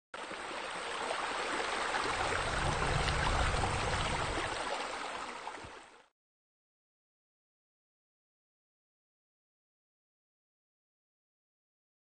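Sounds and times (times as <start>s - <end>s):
water-like rushing noise: 0.2s - 6.1s
low rumble: 2.2s - 4.6s.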